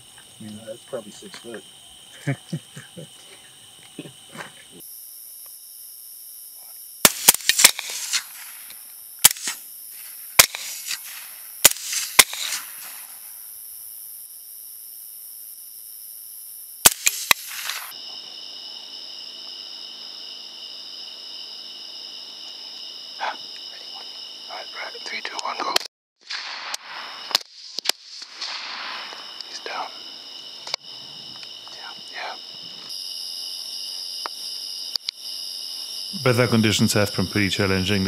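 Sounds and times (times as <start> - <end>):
insects chirring: 0.0 - 38.0
rifle shots: 7.0 - 9.6, 10.3 - 13.1, 16.8 - 17.9, 26.2 - 29.4.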